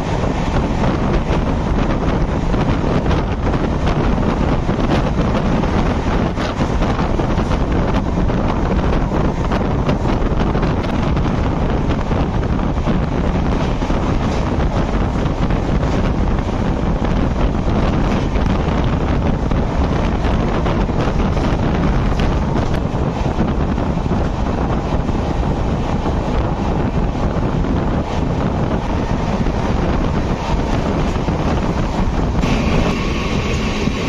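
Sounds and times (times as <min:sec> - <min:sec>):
train running noise: 0:00.0 - 0:34.0
wheels clacking on track: 0:00.0 - 0:34.0
wind buffeting microphone: 0:00.0 - 0:34.0.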